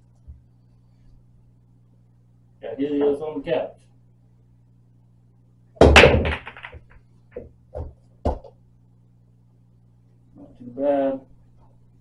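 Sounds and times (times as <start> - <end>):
pool balls clacking: 5.8 - 8.5
cue ball cracking into balls: 5.8 - 8.6.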